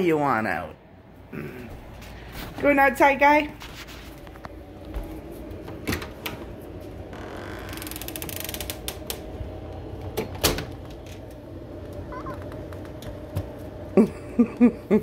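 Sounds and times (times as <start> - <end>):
door creaking: 5.8 - 9.4, 10.0 - 13.4.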